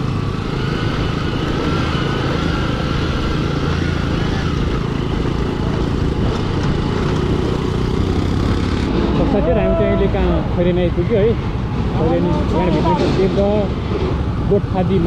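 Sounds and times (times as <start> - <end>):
motorcycle engine running: 0.0 - 9.3
road noise: 0.0 - 15.0.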